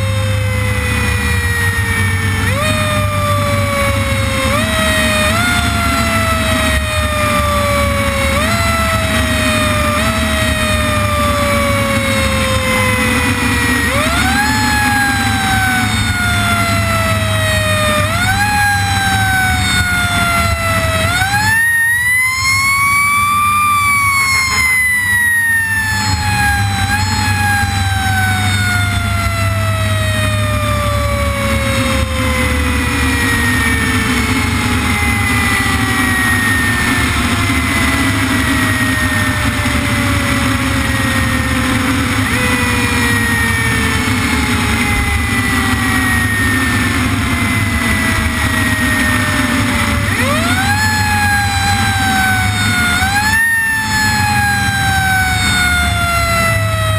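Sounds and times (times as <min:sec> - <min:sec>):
fire engine siren: 0:00.0 - 0:56.9
truck engine and road noise: 0:00.0 - 0:56.9.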